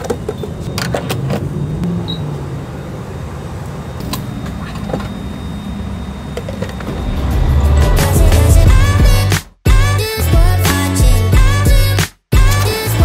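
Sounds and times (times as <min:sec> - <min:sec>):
low rumble: 0:06.7 - 0:09.4.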